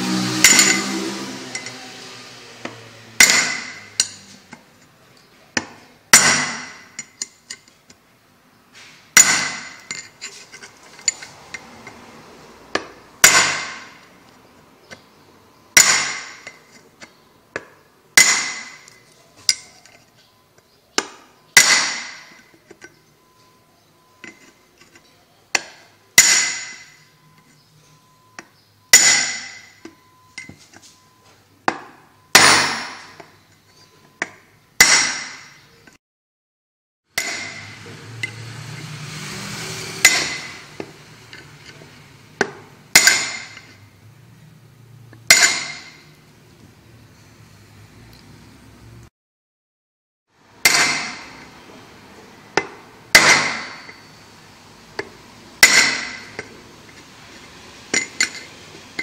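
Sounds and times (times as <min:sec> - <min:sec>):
hammer striking steel punch: 0:00.4 - 0:01.8, 0:03.2 - 0:04.2, 0:05.6 - 0:07.0, 0:09.2 - 0:09.9, 0:12.7 - 0:14.0, 0:15.8 - 0:16.6, 0:17.6 - 0:18.9, 0:21.0 - 0:22.5, 0:25.6 - 0:27.0, 0:28.9 - 0:29.9, 0:31.7 - 0:33.3, 0:34.2 - 0:35.6, 0:37.2 - 0:38.4, 0:40.0 - 0:40.7, 0:42.4 - 0:43.7, 0:45.3 - 0:46.1, 0:50.6 - 0:51.4, 0:52.6 - 0:54.1, 0:55.0 - 0:56.5.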